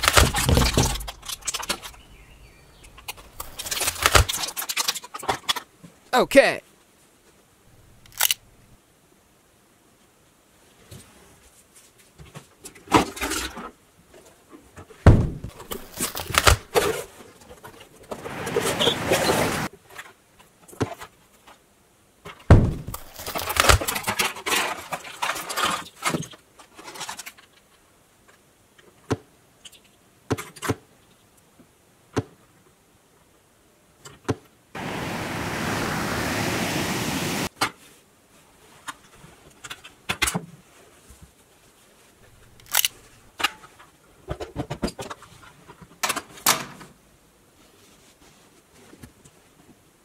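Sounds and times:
packaging crinkling: 15.6 - 16.7, 22.9 - 24.0
steady hiss: 34.8 - 37.5
plastic clicks: 42.5 - 43.0.

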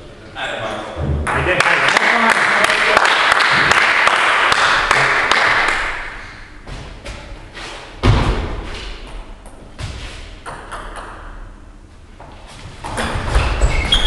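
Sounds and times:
heavy thud: 7.9 - 9.1
ping-pong ball on paddle and table: 10.4 - 11.6.

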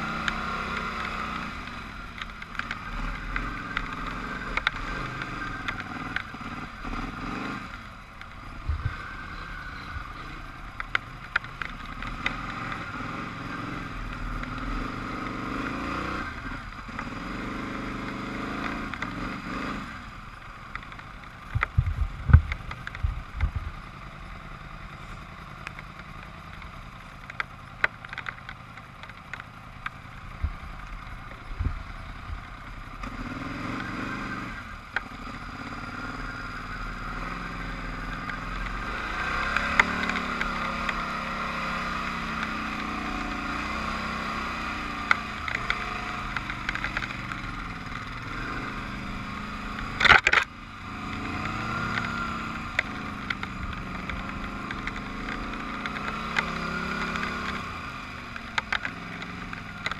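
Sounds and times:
atv engine revving: 0.0 - 59.9
rattles and clatter: 49.7 - 50.5.

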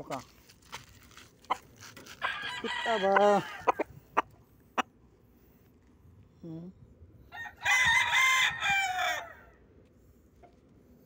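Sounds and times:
rooster crowing: 2.2 - 3.8, 7.3 - 9.6.

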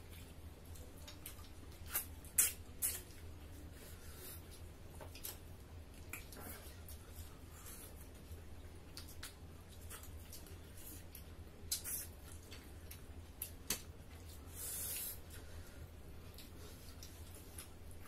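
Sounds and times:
low steady hum: 0.0 - 18.0
wet chewing and lip smacks: 8.8 - 15.0.

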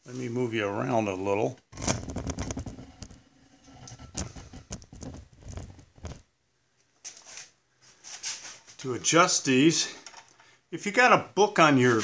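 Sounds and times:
camera handling rustles and clicks: 1.8 - 3.2.

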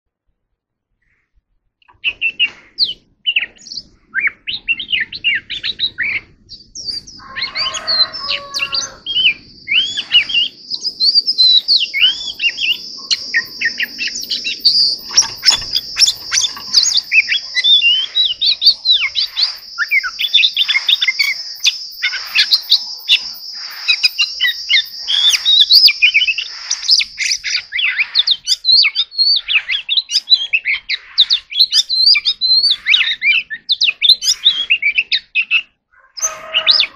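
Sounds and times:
bird singing whistled song: 1.9 - 36.9
steady high buzz: 9.0 - 27.7.

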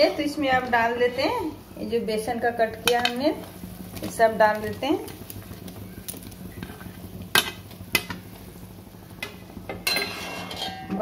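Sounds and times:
spoon clinking on metal pan: 9.8 - 11.0.

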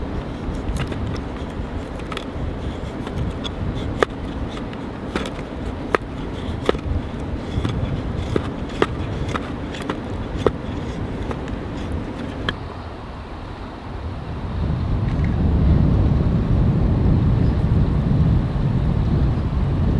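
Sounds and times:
steady low rumble: 0.0 - 12.6.

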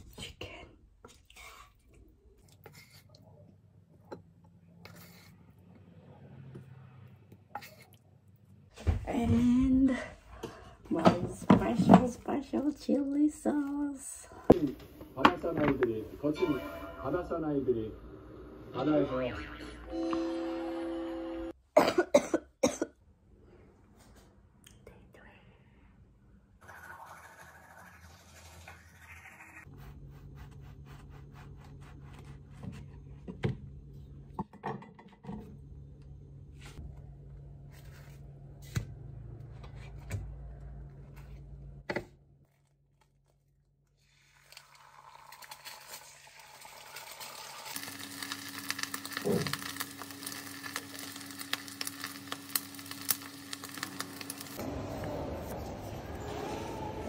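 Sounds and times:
food sizzling in frying pan: 44.8 - 54.6.

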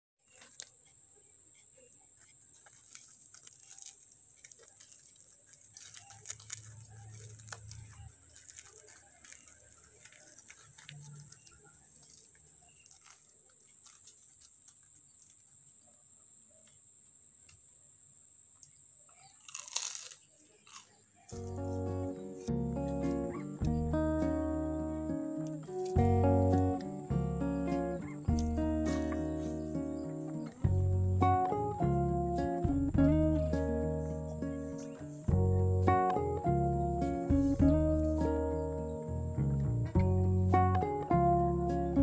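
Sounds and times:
fried bread crunching: 2.2 - 15.5, 19.2 - 22.5.

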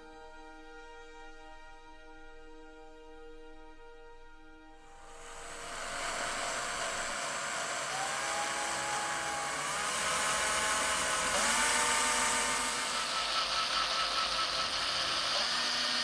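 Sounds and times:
electric drill whirring: 5.0 - 16.0.

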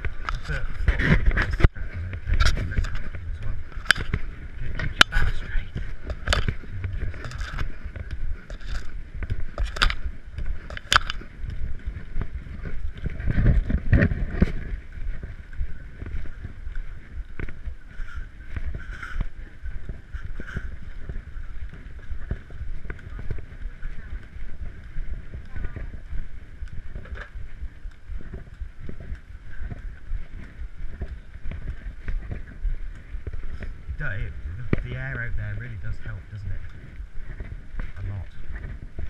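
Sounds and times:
camera handling rumble: 0.0 - 23.5.

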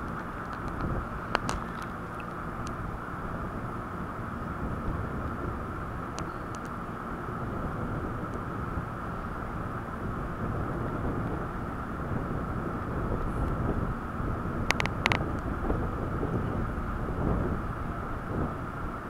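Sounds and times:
electric train rumbling: 0.0 - 19.0.

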